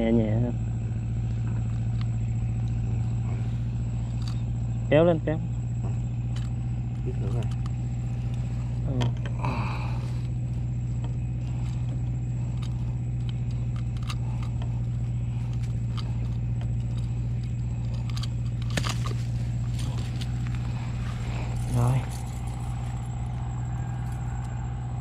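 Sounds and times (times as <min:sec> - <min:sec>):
low engine drone: 0:00.0 - 0:25.0
pliers clicking and scraping: 0:12.5 - 0:19.2.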